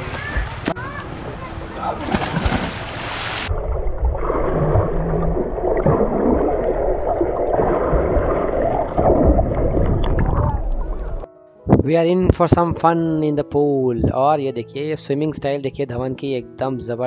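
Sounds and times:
pool water splashing and gurgling: 0.0s - 11.3s.

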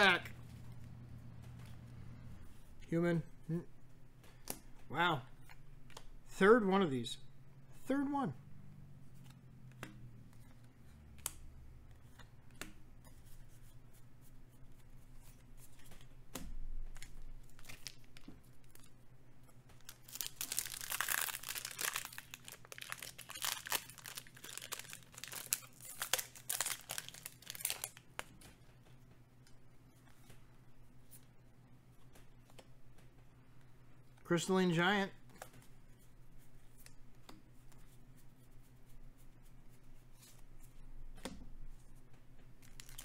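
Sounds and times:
foil wrapper crinkling and tearing: 17.0s - 18.9s, 19.8s - 28.0s, 42.6s - 43.0s.

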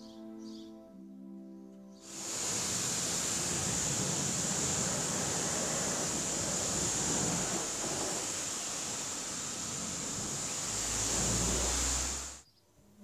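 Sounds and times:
pressure washer spraying water: 2.0s - 12.4s.

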